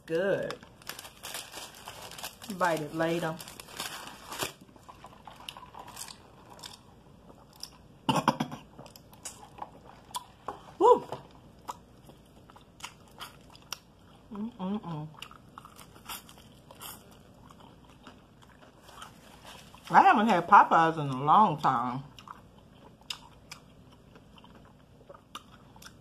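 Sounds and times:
crunching bites and chewing: 0:04.1 - 0:07.9, 0:11.6 - 0:14.3, 0:15.2 - 0:19.8, 0:22.1 - 0:26.0.

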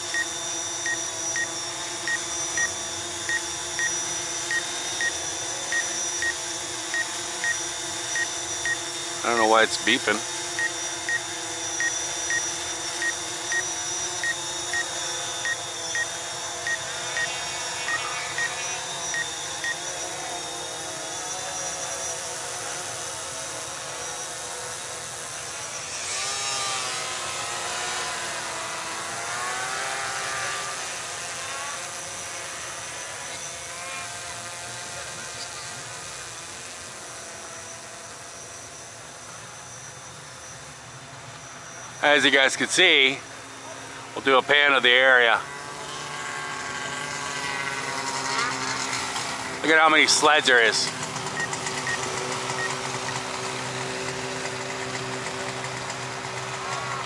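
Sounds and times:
drone motor whine: 0:00.0 - 0:57.0
remote controller beeping: 0:00.1 - 0:19.9.

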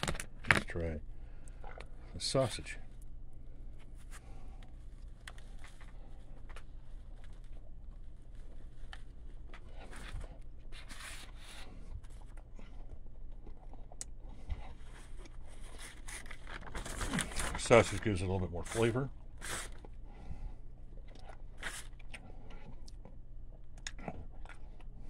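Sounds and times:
low steady hum: 0:00.0 - 0:25.0
person chewing food: 0:01.4 - 0:02.1, 0:04.2 - 0:16.4, 0:19.2 - 0:25.0.

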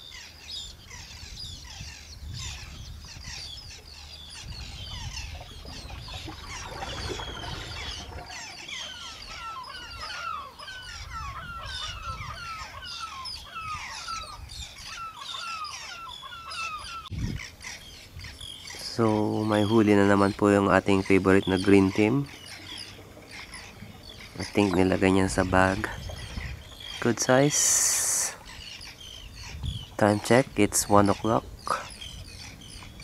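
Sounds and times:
birds chirping: 0:00.0 - 0:33.0
short falling bird calls: 0:00.1 - 0:18.8.

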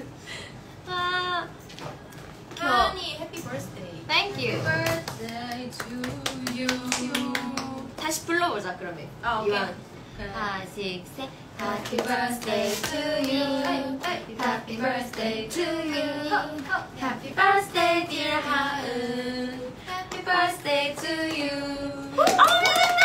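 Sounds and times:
women singing together: 0:04.4 - 0:08.0, 0:10.3 - 0:23.0
hands clapping: 0:04.8 - 0:08.1, 0:22.2 - 0:23.0.

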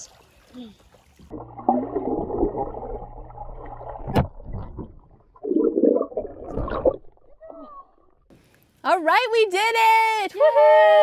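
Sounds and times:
water churning: 0:00.0 - 0:08.2
underwater water sloshing: 0:00.0 - 0:08.3
low hum: 0:01.3 - 0:08.3.

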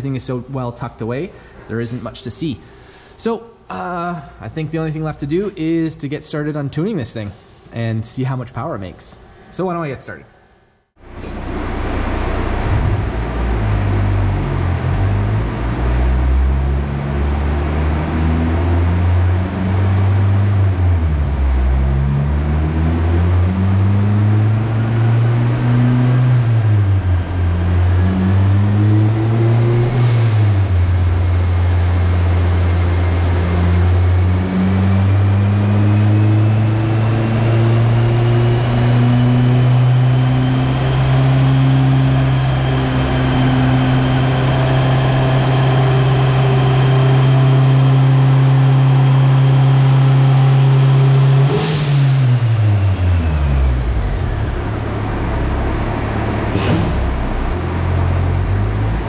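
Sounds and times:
car engine revving under load: 0:11.0 - 0:59.0
high whine: 0:11.0 - 0:59.0
throttle closing burst: 0:56.6 - 0:57.5.

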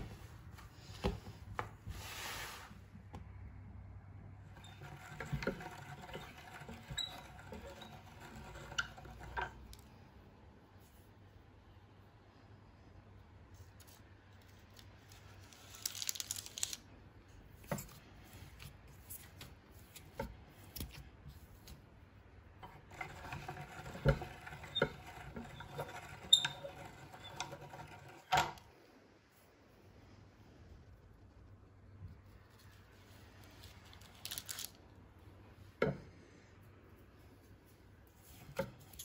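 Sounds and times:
metal meat grinder grinding: 0:04.6 - 0:09.8, 0:22.6 - 0:28.6
parchment paper rustling: 0:13.6 - 0:16.9, 0:32.2 - 0:34.8.

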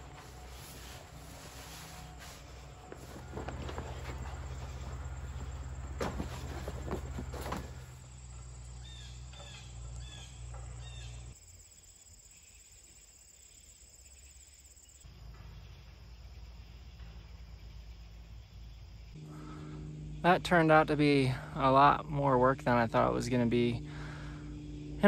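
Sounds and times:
steady low hum: 0:00.0 - 0:12.2, 0:14.8 - 0:25.0
low rumble: 0:19.2 - 0:25.0.

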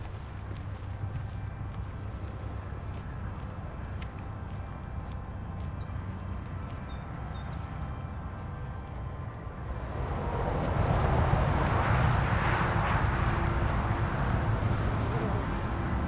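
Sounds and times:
steady low rumble: 0:00.0 - 0:16.0
rushing noise: 0:09.2 - 0:16.0.

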